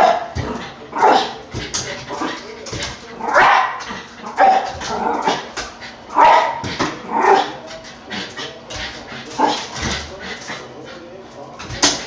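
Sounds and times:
dog barking: 3.3s - 5.4s, 6.1s - 6.6s.

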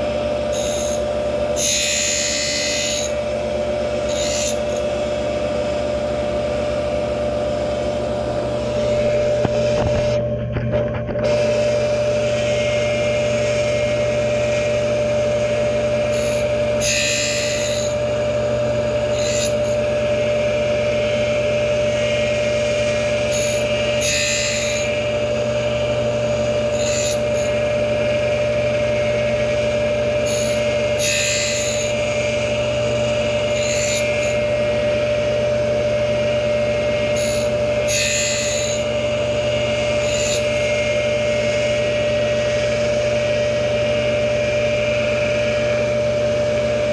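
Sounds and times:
grinder motor whine and hum: 0.0s - 46.9s
gritty hiss of grinding wheel: 4.0s - 4.8s, 16.0s - 18.0s, 22.0s - 27.8s, 30.1s - 34.5s.

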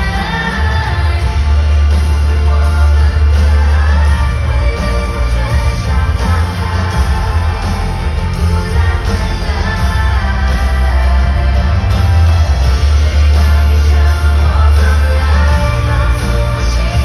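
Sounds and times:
woman singing a ballad: 0.0s - 12.2s
heavy booming bass: 0.0s - 17.0s
live pop band over loudspeakers: 0.0s - 17.0s.

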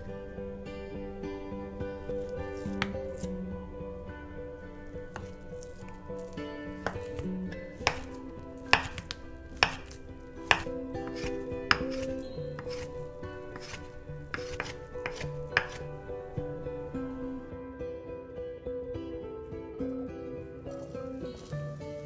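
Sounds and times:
soft background music: 0.0s - 22.0s
knife hitting wooden cutting board: 6.8s - 12.9s, 13.6s - 15.9s.

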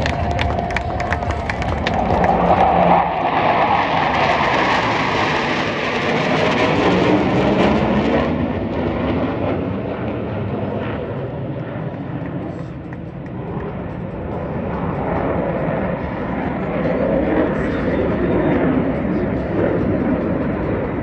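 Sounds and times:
jet engines roaring overhead: 0.0s - 21.0s.

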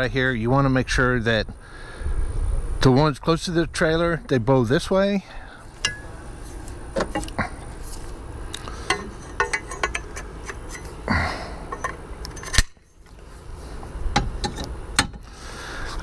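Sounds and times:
metal bike rack parts clinking: 5.8s - 6.2s, 8.8s - 11.0s, 11.7s - 12.8s.

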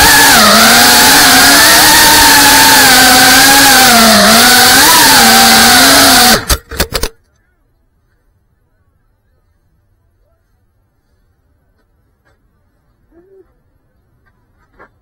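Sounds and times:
drone motors buzzing: 0.0s - 6.6s.

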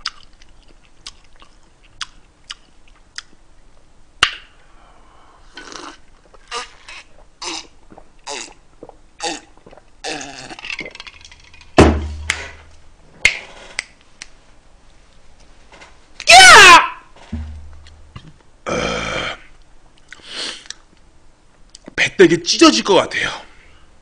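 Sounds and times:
man gulping drink: 5.6s - 11.3s
man burping: 18.2s - 19.5s.

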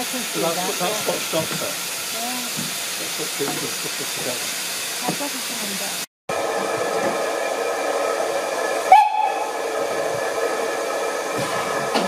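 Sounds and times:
steam hissing: 0.0s - 12.0s
steam locomotive whistle: 6.3s - 12.0s.

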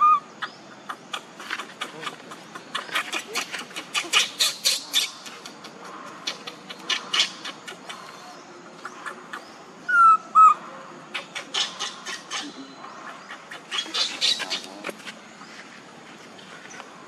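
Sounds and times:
baby monkey crying: 2.7s - 5.2s, 11.2s - 14.7s.

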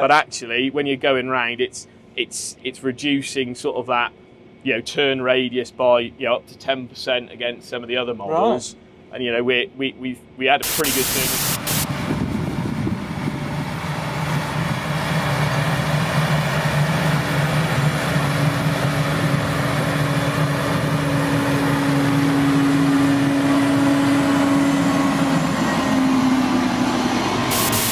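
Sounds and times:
tractor diesel engine under load: 11.7s - 27.9s.

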